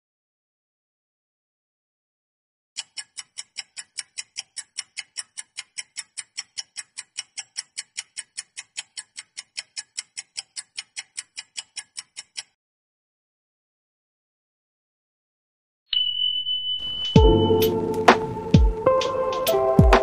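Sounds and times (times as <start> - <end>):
clock ticking: 2.8 - 12.6.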